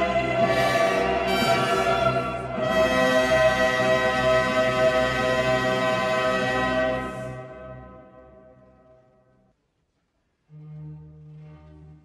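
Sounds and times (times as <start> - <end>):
choir and orchestra chord: 0.0 - 8.5.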